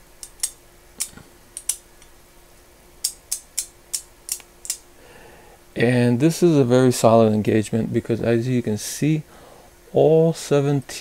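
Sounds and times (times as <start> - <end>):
ratchet clicking: 0.2 - 1.8, 3.0 - 4.8.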